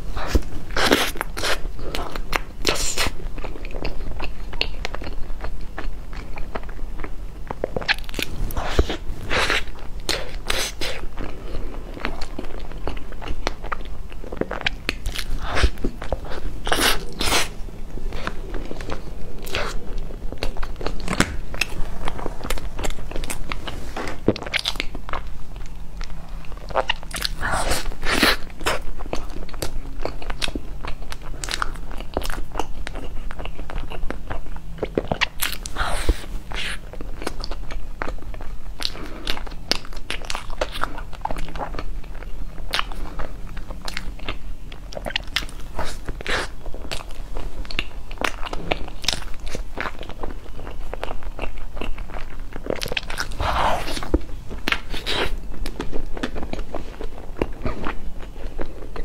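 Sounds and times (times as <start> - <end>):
person chewing pastry: 0.0 - 59.0.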